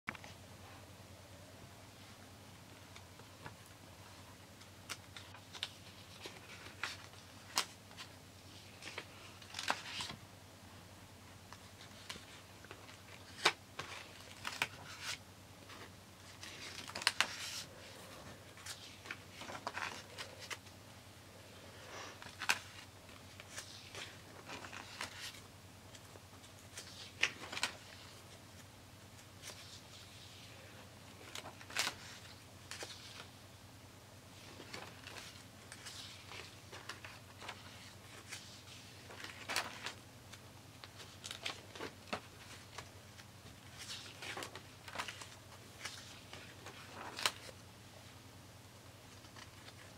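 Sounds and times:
notebook pages turning: 4.6s - 10.2s, 11.5s - 20.7s, 22.2s - 28.2s, 31.2s - 33.3s, 34.4s - 40.0s, 40.8s - 47.6s.

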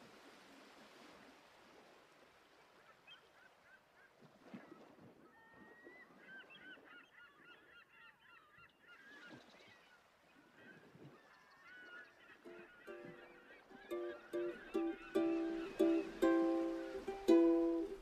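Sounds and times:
birds chirping and honking: 6.2s - 18.0s.

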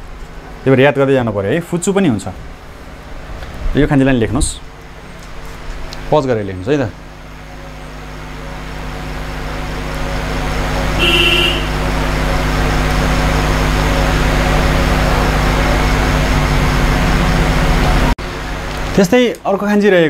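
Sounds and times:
road traffic noise: 0.0s - 19.0s
vehicle horn toot: 10.9s - 12.3s.

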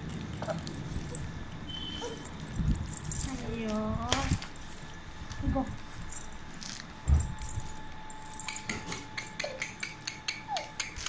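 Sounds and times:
plastic wrapping being handled: 0.0s - 8.8s.

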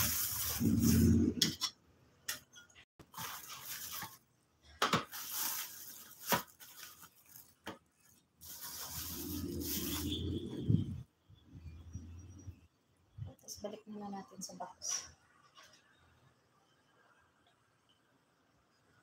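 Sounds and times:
plastic bag rustling: 0.0s - 1.4s, 3.0s - 11.0s.

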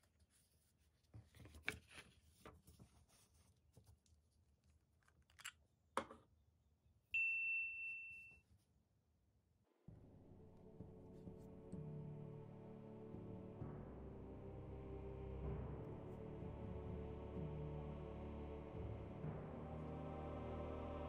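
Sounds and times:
paper rustling: 0.0s - 4.5s
bell-like ding: 7.2s - 8.4s.

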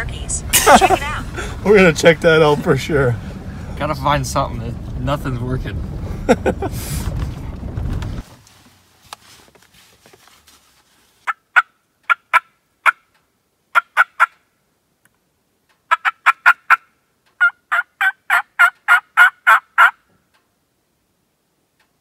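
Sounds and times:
turkey game call notes: 15.9s - 20.0s.

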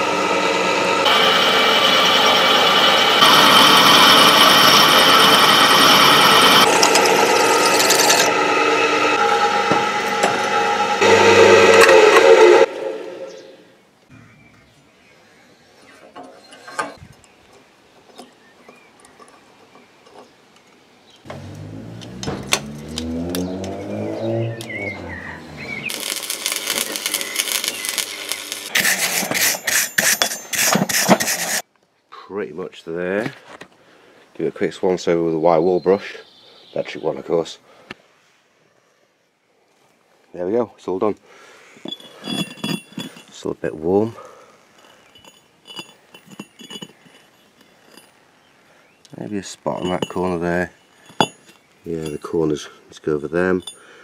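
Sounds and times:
drill motor whine and grinding: 0.0s - 13.6s, 21.3s - 28.8s
welding arc crackling: 2.6s - 8.3s, 25.8s - 29.0s
low wavering hum: 6.5s - 13.8s, 21.3s - 28.5s.

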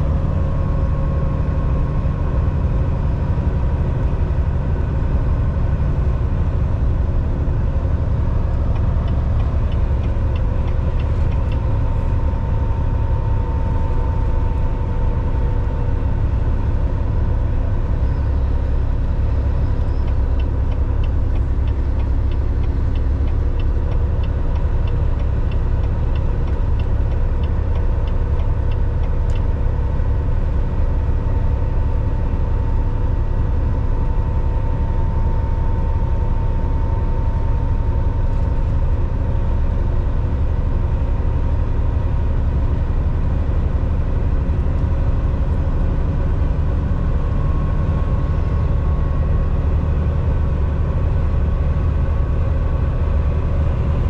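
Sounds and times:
truck engine drone and road noise: 0.0s - 54.0s
light rapid ticks: 8.5s - 11.9s, 19.9s - 29.7s.

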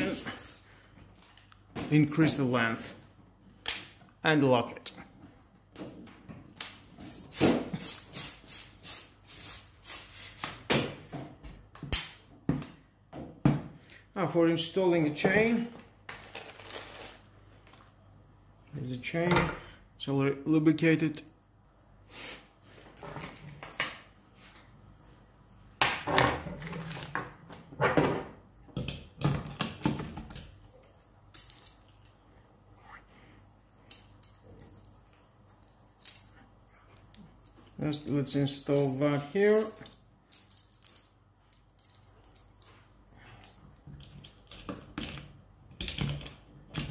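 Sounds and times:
packaging rustling: 16.1s - 17.9s.

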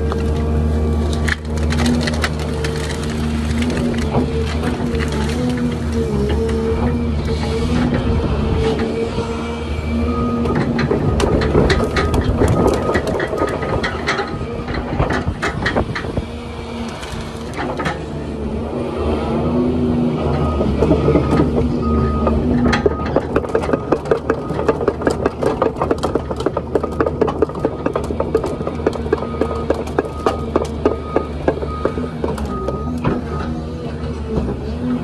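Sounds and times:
wood cracking and snapping: 0.0s - 6.6s
excavator diesel engine and hydraulics: 0.0s - 35.0s.

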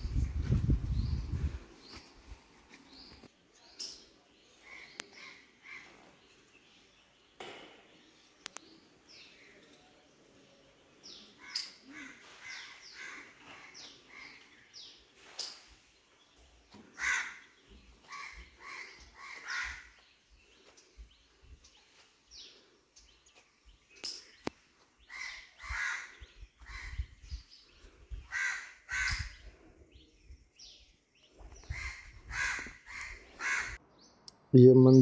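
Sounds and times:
crows cawing: 11.4s - 13.5s, 16.9s - 20.0s, 25.1s - 26.9s, 28.3s - 29.4s, 31.7s - 33.8s.

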